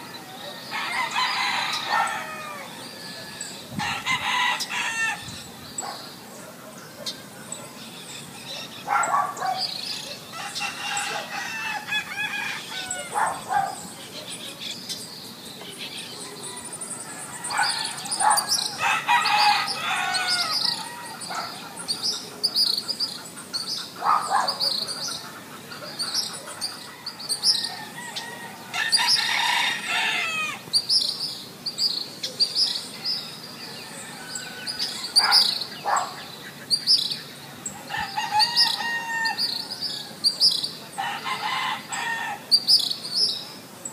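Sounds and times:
rooster crowing: 0.0s - 5.3s, 10.3s - 13.5s, 16.2s - 21.7s, 26.8s - 30.6s, 33.6s - 35.5s, 37.9s - 40.2s, 41.0s - 42.5s
small birds chirping: 0.0s - 43.9s.

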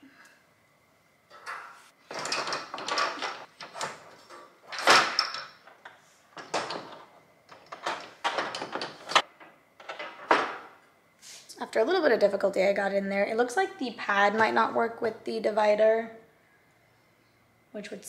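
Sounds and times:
wire divider rattling in crate: 2.1s - 5.6s, 6.4s - 9.2s.

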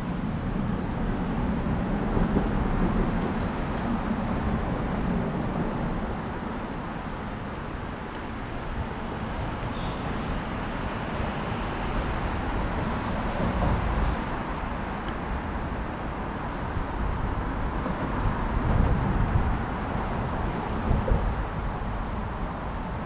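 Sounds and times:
wind on microphone: 7.6s - 23.0s.

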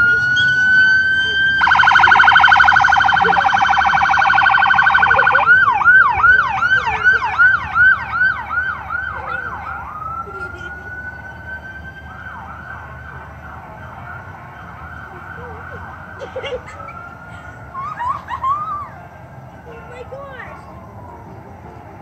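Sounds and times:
fire truck siren: 0.0s - 22.0s.

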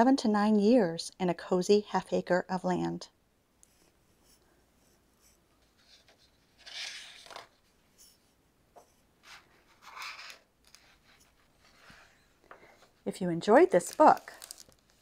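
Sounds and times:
book pages turning: 5.6s - 7.6s, 9.2s - 13.0s, 13.6s - 15.0s.

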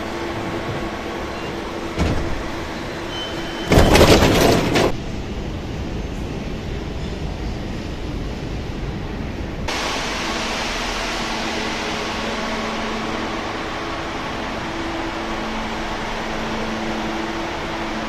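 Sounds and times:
train outside: 0.0s - 18.0s
ventilation rushing hiss: 8.9s - 18.0s.

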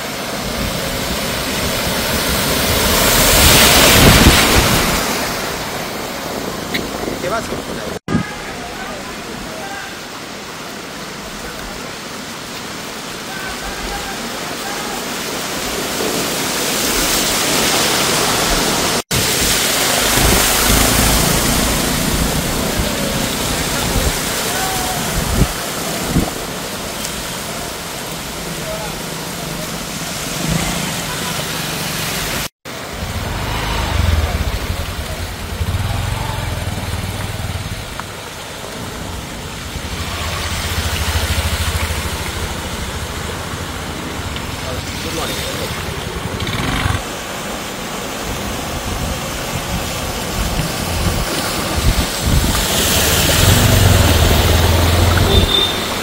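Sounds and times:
heavy rain and floodwater rushing: 0.0s - 56.0s
vehicles driving through floodwater: 0.0s - 56.0s
wind on microphone: 0.4s - 8.4s, 18.5s - 26.7s, 48.4s - 55.6s
motorcycle approaching: 19.8s - 24.0s, 30.3s - 47.2s, 52.3s - 56.0s.

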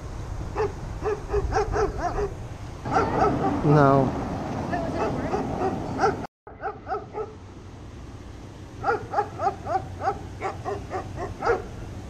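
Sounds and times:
dog barking: 0.6s - 3.6s, 4.9s - 7.4s, 8.8s - 11.8s.

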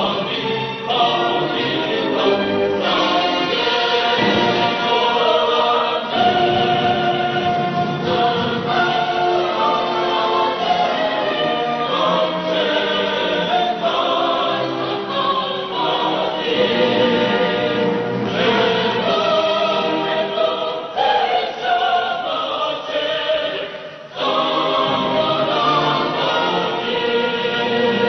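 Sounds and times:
choir singing held chords: 0.0s - 28.0s.

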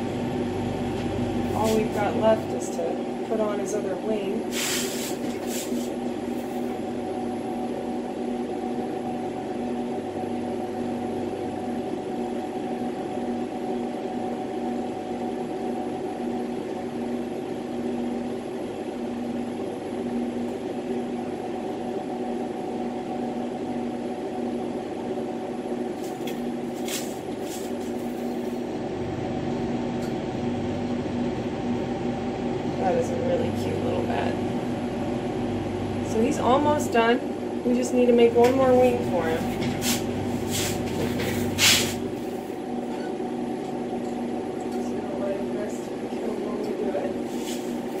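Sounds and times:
machine hum: 0.0s - 48.0s
torch hissing: 4.5s - 6.7s.

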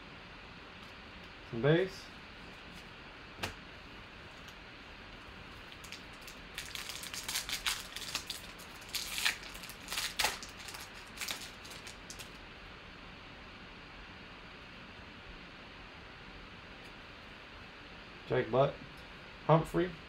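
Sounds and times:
foil card pack crinkling: 5.6s - 12.4s.

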